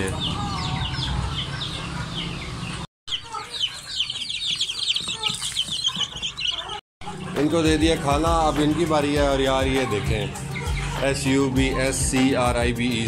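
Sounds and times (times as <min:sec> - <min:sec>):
chicks peeping: 0:00.0 - 0:12.4.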